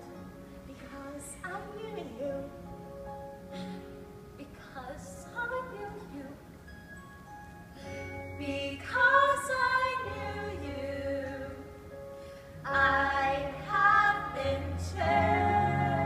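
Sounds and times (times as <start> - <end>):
woman singing: 0.7 - 2.6, 4.4 - 6.4, 8.4 - 11.8.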